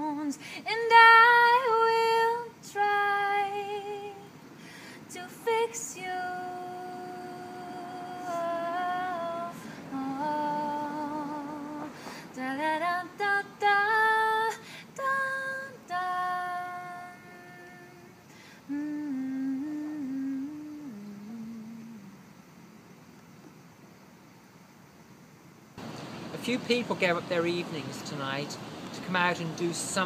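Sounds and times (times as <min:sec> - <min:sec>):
woman singing slow melody: 0:00.0 - 0:22.7.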